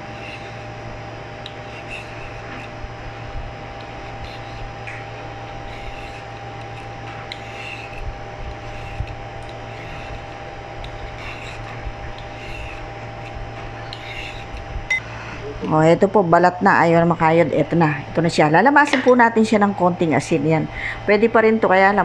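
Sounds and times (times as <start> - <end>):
vegetable peeler scraping radish: 0.0 - 14.8
steady background hum: 0.0 - 22.0.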